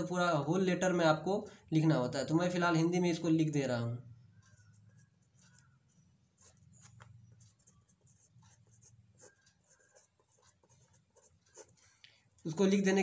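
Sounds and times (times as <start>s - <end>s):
pen scratching on paper: 4.3s - 13.0s.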